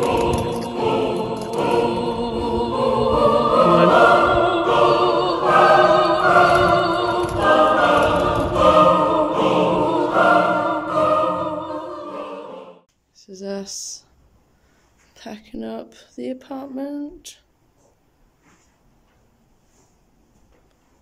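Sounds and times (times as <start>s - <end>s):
choir singing sustained chords: 0.0s - 12.9s.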